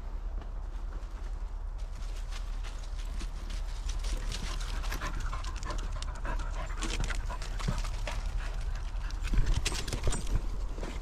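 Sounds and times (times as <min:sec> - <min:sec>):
small dogs panting: 0:04.0 - 0:10.0.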